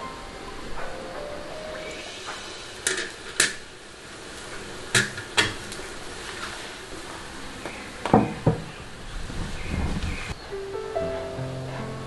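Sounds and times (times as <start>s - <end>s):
steam hissing: 0.0s - 8.0s.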